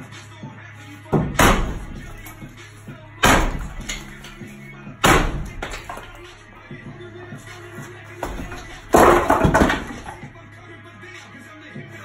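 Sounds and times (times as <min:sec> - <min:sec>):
sledgehammer striking brick: 0:01.1 - 0:06.4, 0:08.2 - 0:10.3
bricks breaking loose: 0:01.2 - 0:06.5, 0:07.6 - 0:10.4.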